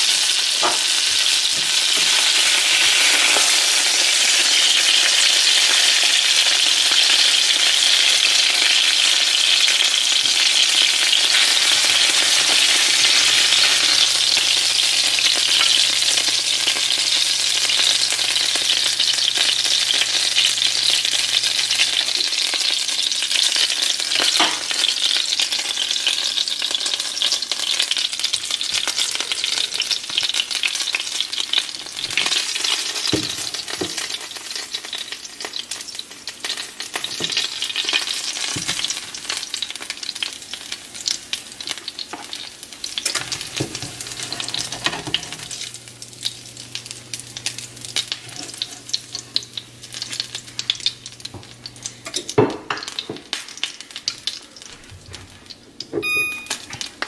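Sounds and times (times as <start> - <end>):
fish sizzling in hot oil: 0.0 - 54.6.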